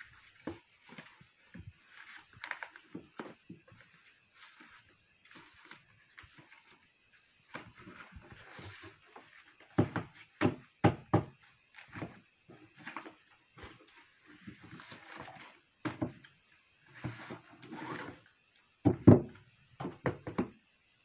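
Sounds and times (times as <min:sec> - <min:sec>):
paper rustling: 0:01.8 - 0:06.9.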